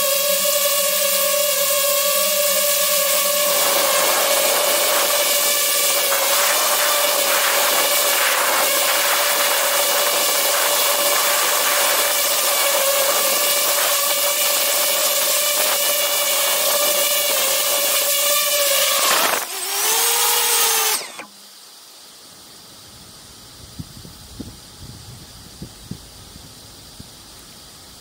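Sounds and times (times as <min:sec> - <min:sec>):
drone motors whining: 0:00.0 - 0:21.5.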